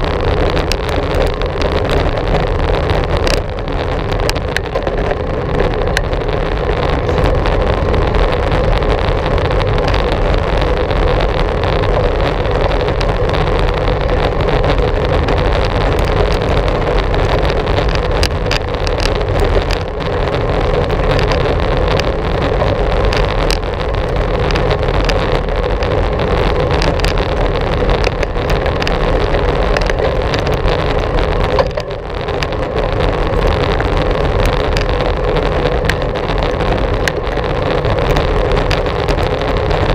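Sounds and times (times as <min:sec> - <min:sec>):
small clicks and rattles: 0:00.0 - 0:39.9
wind rushing on microphone: 0:00.0 - 0:39.9.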